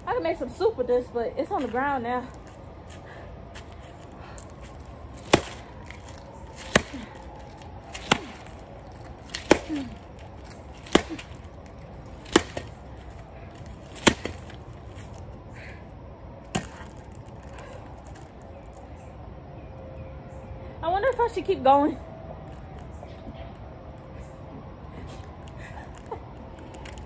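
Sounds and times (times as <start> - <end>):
bat smashing a pumpkin: 5.2 - 11.5, 12.1 - 12.8, 13.8 - 14.7.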